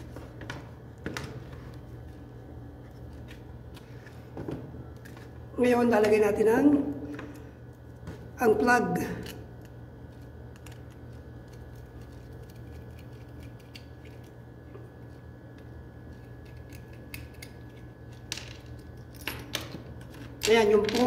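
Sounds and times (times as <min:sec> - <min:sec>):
steady low hum: 0:00.0 - 0:21.0
screwdriver clicking and scraping: 0:10.6 - 0:14.3.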